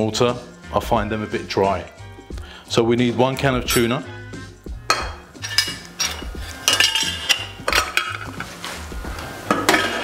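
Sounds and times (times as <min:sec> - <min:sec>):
metal utensil clinking on a can and bowl: 0:04.9 - 0:08.5.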